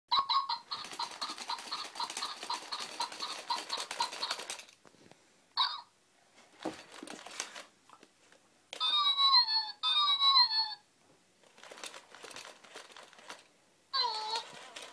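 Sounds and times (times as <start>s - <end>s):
toy robot mechanical clicking: 0.7s - 4.8s, 11.6s - 14.9s.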